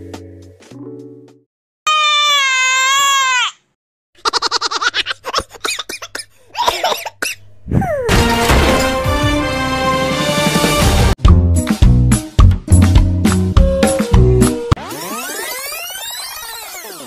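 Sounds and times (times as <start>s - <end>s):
cartoon crying wail: 1.9s - 3.6s
choppy mocking laughter: 4.2s - 7.2s.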